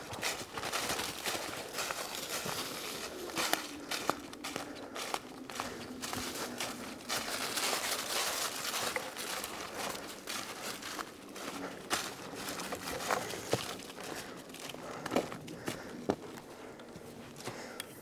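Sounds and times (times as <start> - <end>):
sharp crackles of leaves: 0.0 - 16.7
footsteps crunching through dry leaves: 0.0 - 17.8.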